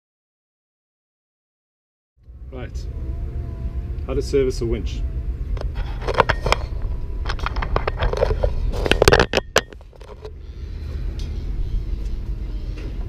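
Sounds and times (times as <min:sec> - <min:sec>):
low rumble: 0:02.2 - 0:13.0
camera handling scrapes and clicks: 0:05.6 - 0:10.4.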